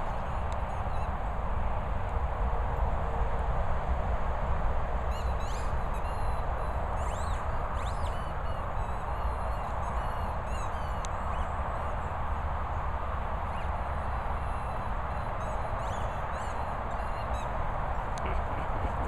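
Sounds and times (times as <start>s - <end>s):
outdoor background noise: 0.0s - 19.0s
bird chirps: 5.1s - 6.4s.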